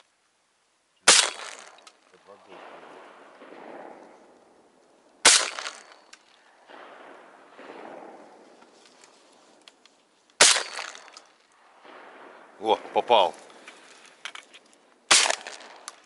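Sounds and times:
shotgun shots: 1.0s - 8.8s, 10.4s - 13.9s, 15.0s - 16.0s.

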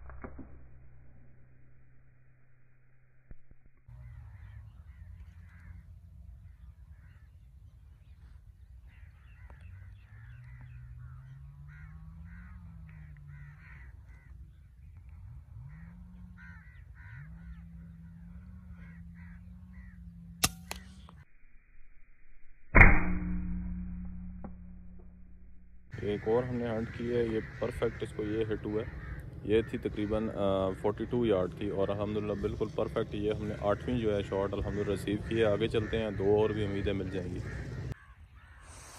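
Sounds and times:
low rumbling hum: 0.0s - 38.0s
birds calling: 3.9s - 21.3s, 25.9s - 38.9s
air rifle shot: 20.4s - 21.1s, 22.8s - 25.1s.

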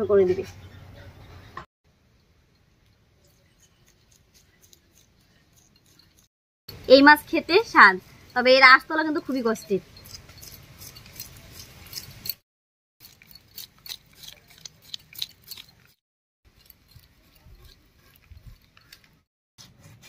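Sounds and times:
knife crunching through fish scales: 10.0s - 12.4s, 13.0s - 19.1s.

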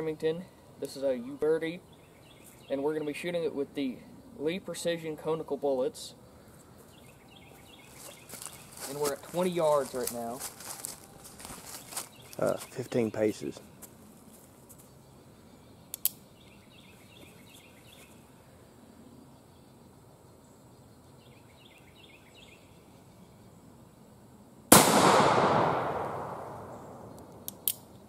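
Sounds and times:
revolver gunshot with ringing decay: 24.7s - 27.1s.

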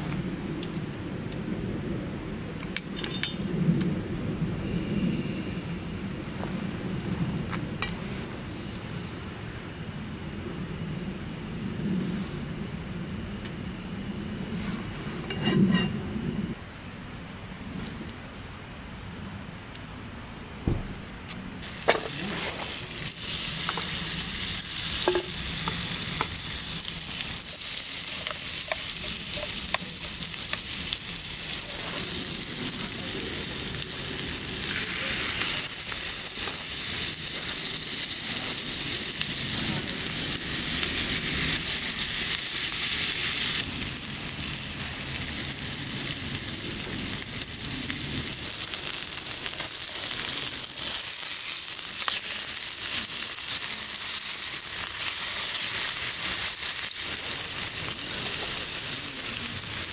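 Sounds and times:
food sizzling in a frying pan: 21.6s - 59.9s.

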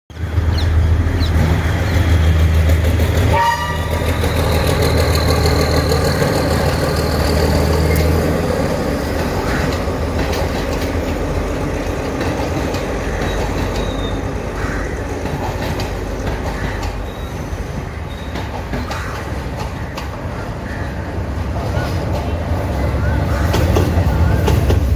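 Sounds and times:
diesel train engine droning: 0.1s - 24.9s
train wheels clattering: 1.2s - 20.2s
train horn blast: 3.3s - 4.2s.

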